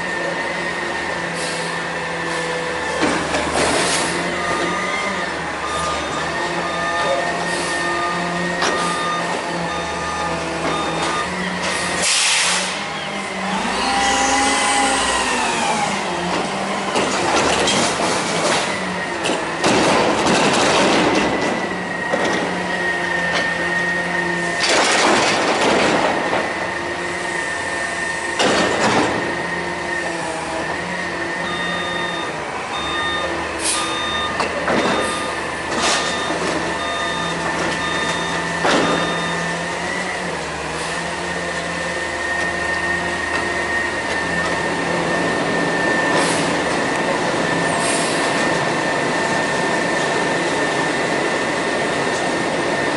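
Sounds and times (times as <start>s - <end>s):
garbage truck engine revving: 0.0s - 52.9s
beeping alarm: 4.5s - 11.7s, 31.4s - 40.2s
trash bangs and crashes: 19.6s - 21.6s, 24.6s - 26.6s.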